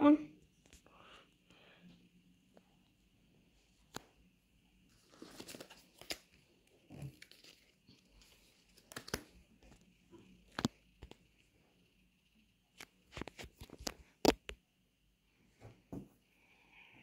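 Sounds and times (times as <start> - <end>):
rustling: 4.8 - 11.5.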